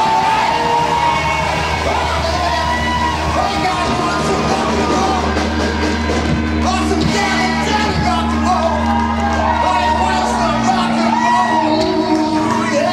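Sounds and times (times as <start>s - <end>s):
man singing and yelling: 0.0s - 5.8s, 6.6s - 8.8s, 9.4s - 12.9s
bass guitar: 0.0s - 12.9s
drums: 0.0s - 12.9s.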